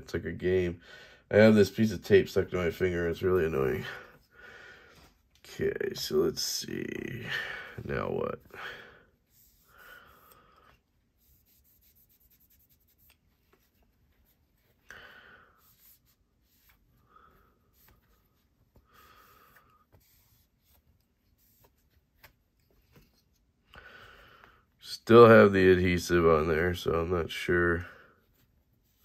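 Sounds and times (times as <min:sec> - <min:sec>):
cloth rubbing on knife blade: 0:11.1 - 0:14.8.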